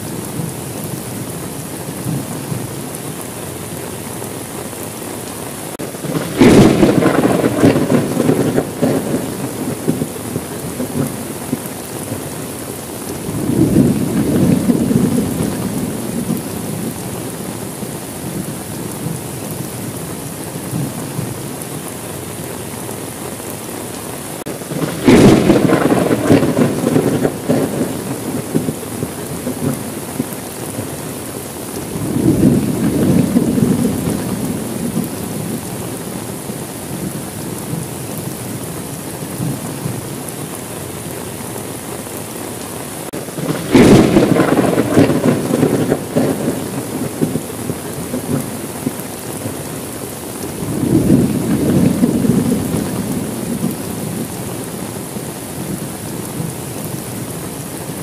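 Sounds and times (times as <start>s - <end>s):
heavy rain: 0.0s - 58.0s
thunder: 5.8s - 12.4s, 13.2s - 17.0s, 24.4s - 31.0s, 31.8s - 36.0s, 43.2s - 49.7s, 50.5s - 54.5s.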